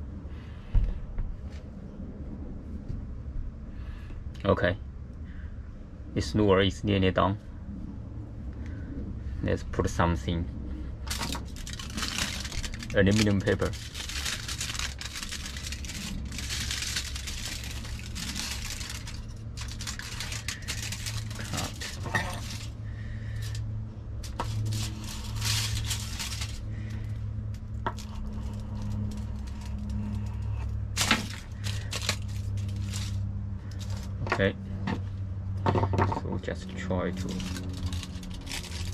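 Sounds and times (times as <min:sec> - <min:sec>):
steady low hum: 0:00.0 - 0:38.9
knife cutting foil: 0:11.1 - 0:22.8, 0:24.2 - 0:26.7, 0:27.8 - 0:33.2, 0:37.2 - 0:38.9
aluminium foil crinkling: 0:11.1 - 0:23.6, 0:24.2 - 0:34.2, 0:37.2 - 0:38.9.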